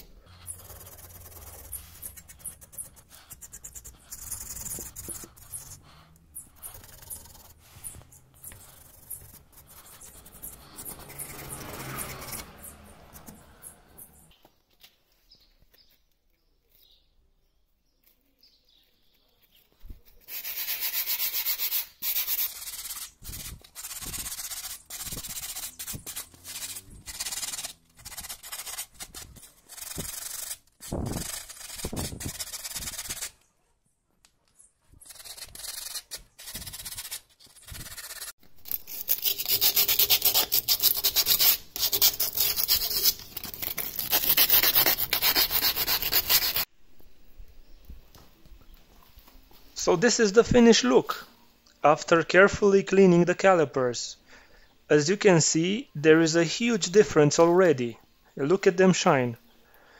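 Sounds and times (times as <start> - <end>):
sandpaper scratching metal: 0.0 - 13.4, 20.0 - 33.4, 35.0 - 46.7.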